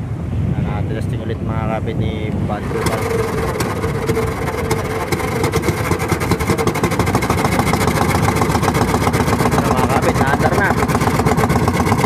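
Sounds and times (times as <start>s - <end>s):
small boat engine running: 2.6s - 12.0s.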